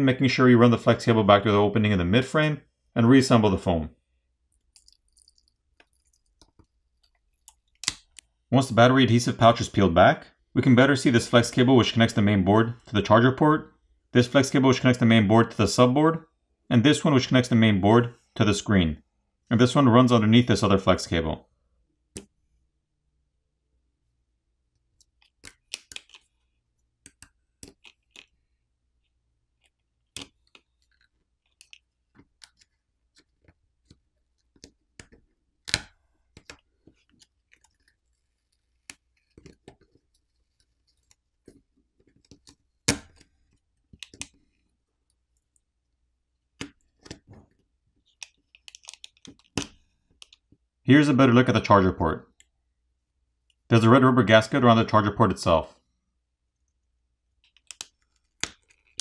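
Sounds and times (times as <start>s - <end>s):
tweezers clicking and tapping: 27.0s - 28.3s, 29.6s - 43.3s.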